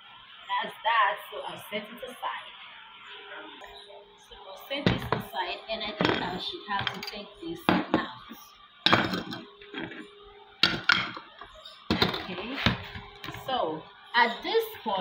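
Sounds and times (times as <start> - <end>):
utensils knocking on plate and bowl: 4.9 - 8.1, 8.9 - 10.0, 10.6 - 13.4.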